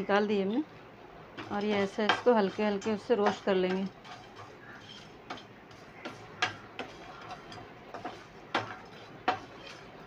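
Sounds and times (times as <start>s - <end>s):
wooden spatula scraping pan: 1.3s - 10.0s
spices clicking in pan: 1.4s - 10.0s.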